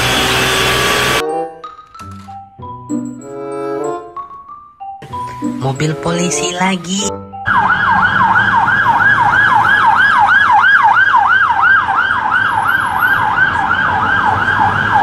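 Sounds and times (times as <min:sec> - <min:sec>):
low traffic hum: 0:05.3 - 0:15.0
police siren yelping: 0:06.4 - 0:15.0.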